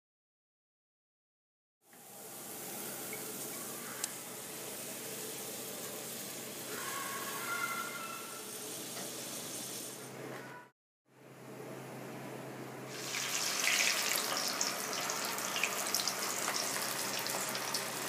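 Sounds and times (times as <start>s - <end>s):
steady kitchen hiss: 1.8s - 10.4s, 12.8s - 18.0s.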